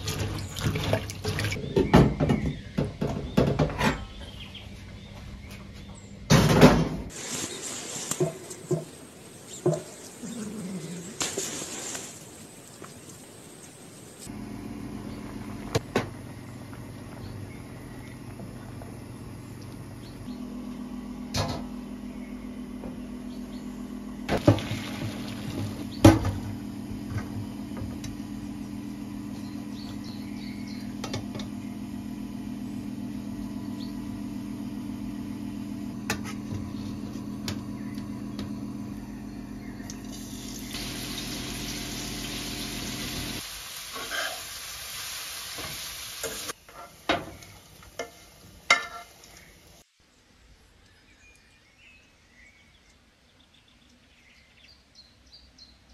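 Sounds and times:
steady low hum: 13.4 - 43.4
spoon scraping frying pan: 44.0 - 44.5.

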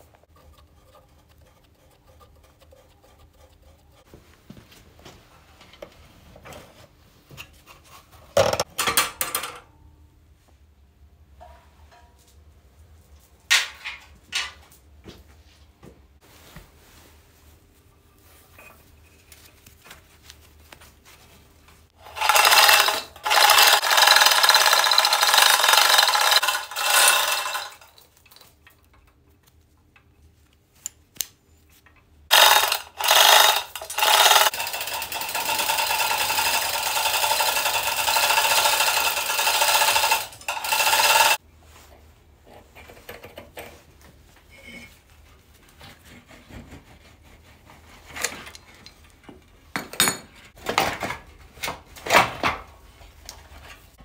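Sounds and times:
power tool running: 22.0 - 27.8, 32.3 - 41.4.

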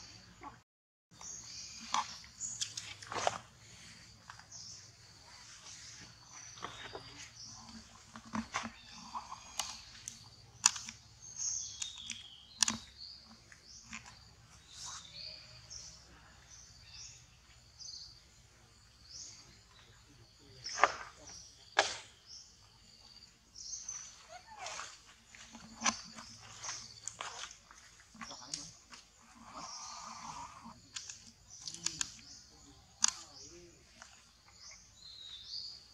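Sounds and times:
birds chirping: 0.0 - 35.9
sharp clicks: 9.5 - 11.0, 11.7 - 14.2, 30.9 - 32.3, 33.0 - 33.3.

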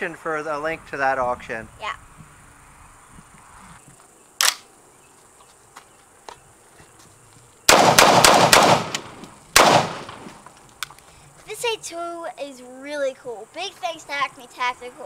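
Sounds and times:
rifle shots with echo: 7.7 - 10.4.

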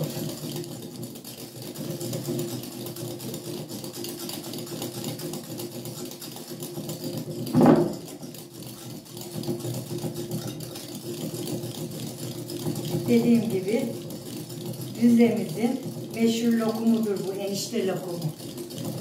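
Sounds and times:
whisk clattering against glass bowl: 0.0 - 19.0
knock: 7.5 - 8.1.

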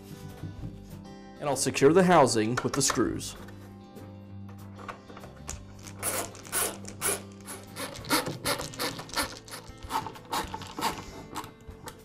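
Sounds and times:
screws scraping clicks in plastic: 5.8 - 12.0.

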